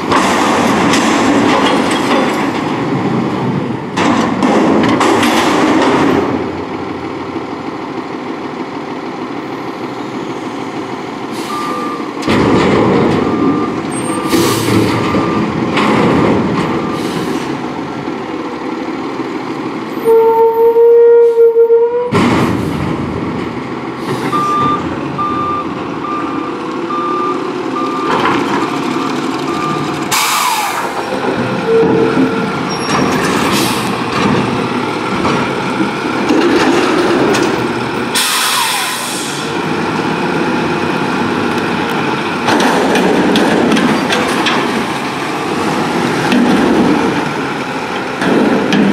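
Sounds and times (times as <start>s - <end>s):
steel dumpster clanging: 0.0s - 6.7s, 11.4s - 17.6s, 27.8s - 39.4s, 42.1s - 48.9s
diesel engine and hydraulics: 0.0s - 48.9s
reversing beeps: 11.4s - 12.2s, 13.2s - 15.6s, 16.8s - 17.1s, 24.3s - 30.7s
air hissing: 38.2s - 39.5s.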